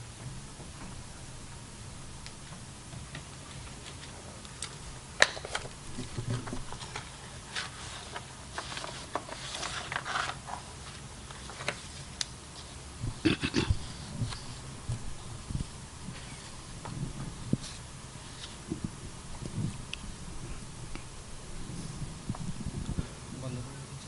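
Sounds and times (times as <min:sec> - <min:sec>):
low thumps: 0:00.0 - 0:03.1, 0:13.0 - 0:23.3
papers rustling: 0:02.5 - 0:12.8, 0:13.7 - 0:20.6.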